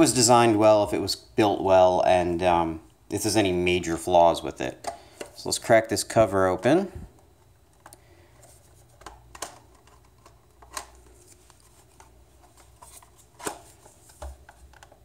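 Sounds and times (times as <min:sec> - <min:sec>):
handling rustle: 0:08.4 - 0:15.0
plastic case clicking and snapping: 0:09.0 - 0:11.1.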